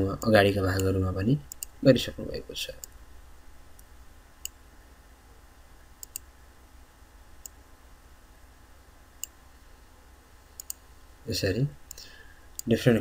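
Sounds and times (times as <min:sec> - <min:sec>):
low steady hum: 0:00.0 - 0:13.0
computer mouse clicks: 0:01.5 - 0:01.8, 0:03.8 - 0:04.6, 0:06.0 - 0:06.3, 0:10.6 - 0:10.8.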